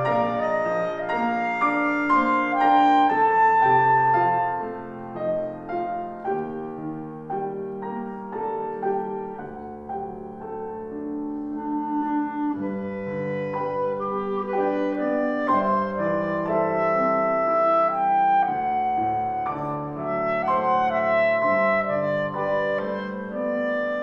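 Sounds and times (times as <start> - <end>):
clarinet melody: 0.0 - 24.0
piano accompaniment: 0.0 - 24.0.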